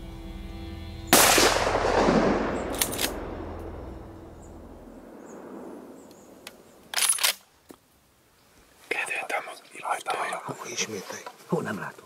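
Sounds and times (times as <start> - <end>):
rifle shot with echo: 1.1 - 3.9, 5.0 - 6.4.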